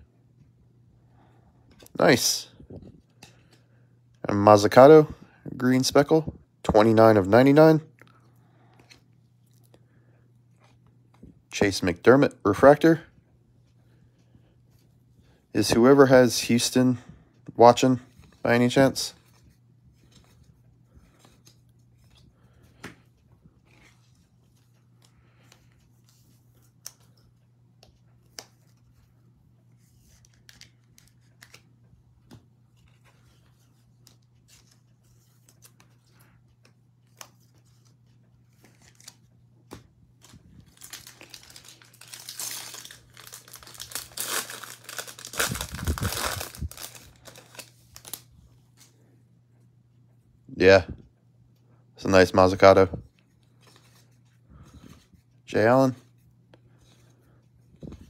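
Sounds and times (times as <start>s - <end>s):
wrapper crinkling: 40.2s - 48.3s.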